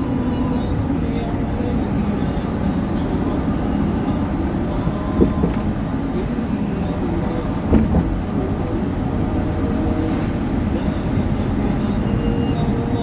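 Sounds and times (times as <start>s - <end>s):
car road and engine noise: 0.0s - 13.0s
short knocks: 5.2s - 5.7s, 7.7s - 8.2s.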